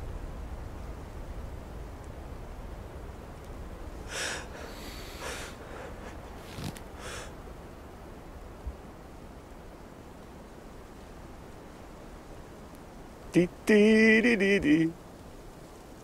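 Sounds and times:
faint low rumble: 0.0 - 16.0
man gasping and sniffing: 4.1 - 7.3.

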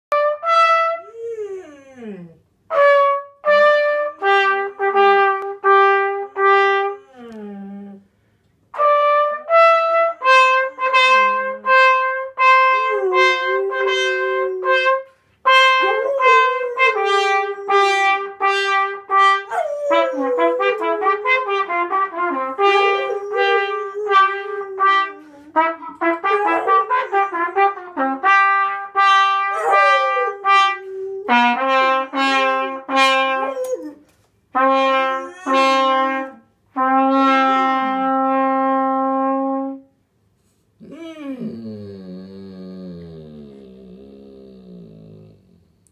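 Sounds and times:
trumpet playing: 0.1 - 1.1, 2.7 - 7.2, 8.8 - 39.9
dog howling: 12.8 - 14.8, 15.8 - 18.4, 19.5 - 21.6, 22.3 - 28.0, 29.5 - 31.8, 33.2 - 34.0, 35.0 - 35.8, 40.8 - 45.3.

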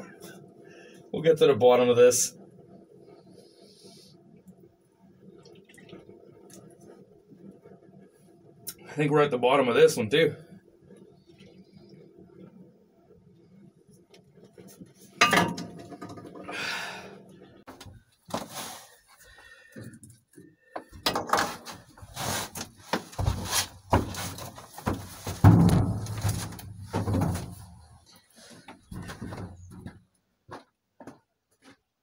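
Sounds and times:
knocks and thumps in truck bed: 22.9 - 27.8, 28.9 - 30.0.

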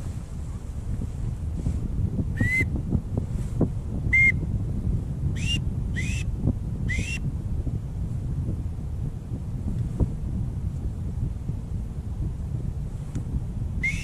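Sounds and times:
wind rumbling on microphone: 0.0 - 14.0
duck whistle peeps: 2.4 - 2.7, 4.2 - 4.4, 5.4 - 6.3, 6.9 - 7.2.

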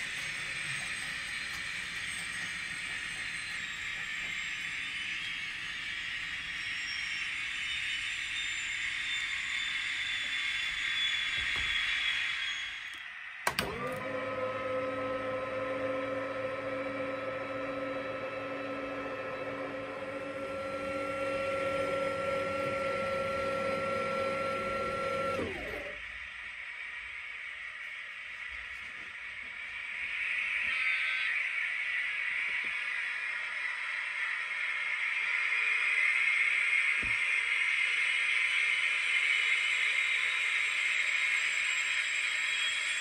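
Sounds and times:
click: 12.9 - 14.0
steady hiss: 26.1 - 43.0.

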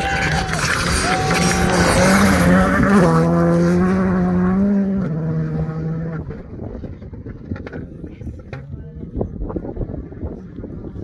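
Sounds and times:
rally car passing at speed: 0.0 - 7.2.

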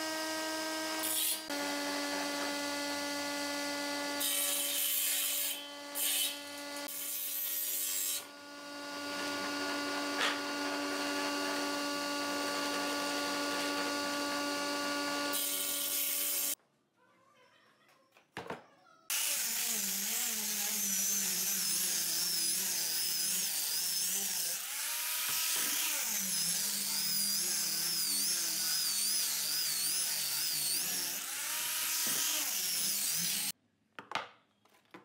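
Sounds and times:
electric sander whining on wood: 0.0 - 4.2, 8.3 - 15.4, 19.1 - 33.5.

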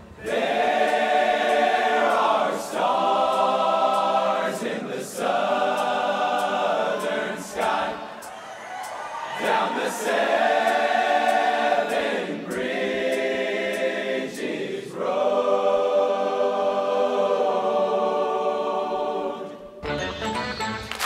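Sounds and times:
male chorus singing a cappella: 0.1 - 19.8
plucked country-style music: 19.8 - 21.0.

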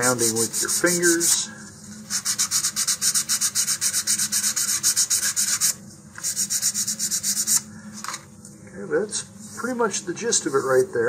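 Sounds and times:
sandpaper rubbing on wood: 0.0 - 1.4, 2.1 - 7.6.

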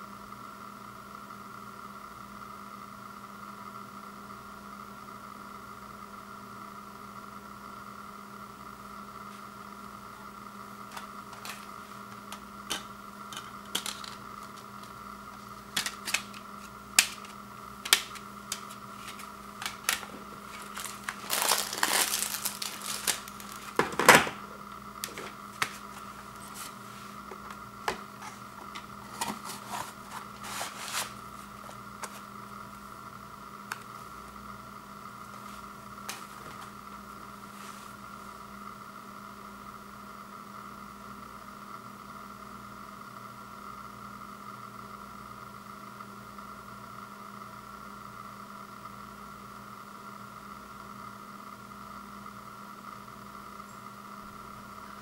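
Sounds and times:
steady background hum: 0.0 - 55.0
plastic cd cases clicking: 10.9 - 15.0, 15.7 - 24.4, 25.0 - 26.7, 27.3 - 31.1
scraping rustle: 28.2 - 32.2.

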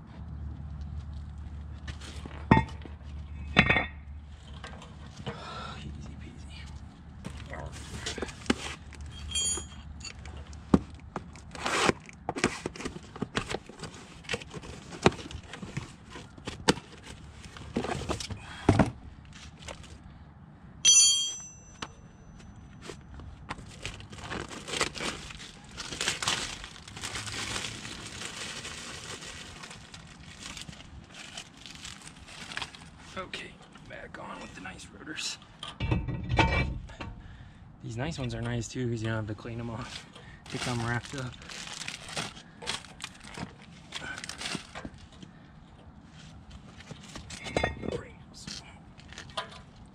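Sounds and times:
brief metallic ring: 20.8 - 22.4
plastic wrapping crinkling: 23.6 - 33.1, 40.5 - 45.1.

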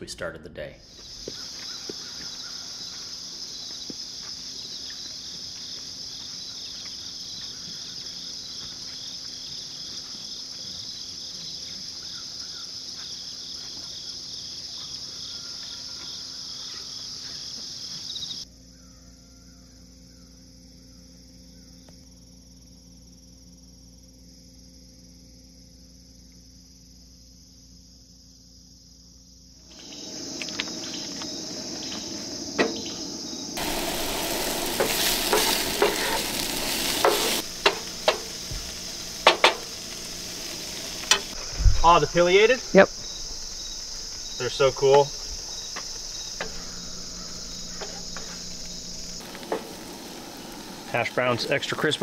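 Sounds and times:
insect chorus trilling: 0.8 - 52.0.

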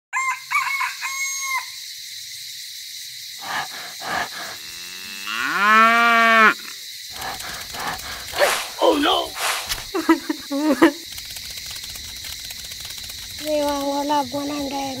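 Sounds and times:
cow mooing: 3.5 - 6.7.

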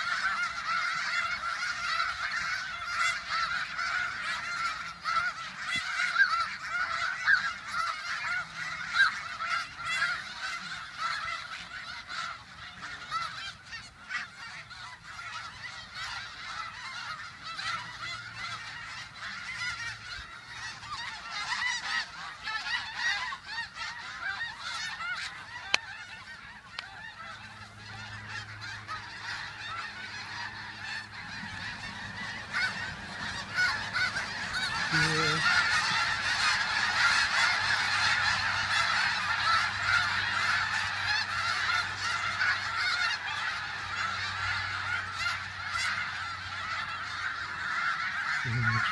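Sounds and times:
geese honking and yelping: 0.0 - 48.9.

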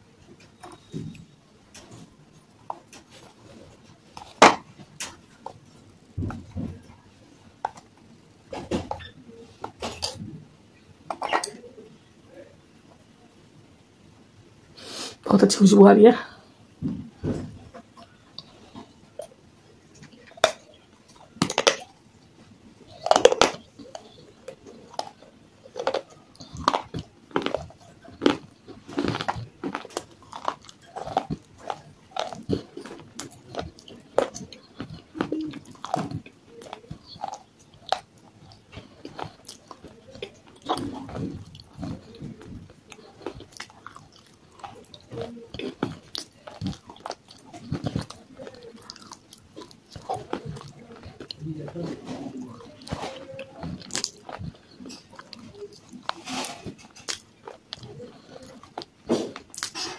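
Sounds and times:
clay pieces crunching in mouth: 18.0 - 22.1, 22.8 - 59.9.

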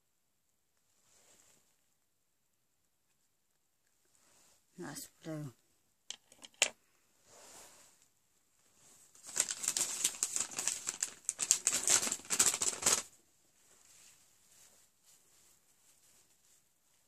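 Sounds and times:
clothing crackling rustle: 0.8 - 1.9, 7.0 - 17.0.

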